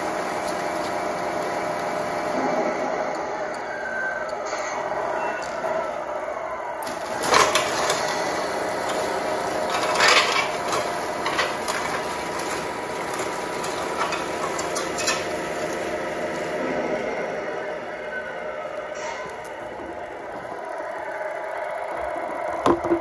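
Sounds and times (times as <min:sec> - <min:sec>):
toy truck electric motor whining: 0:03.1 - 0:23.0.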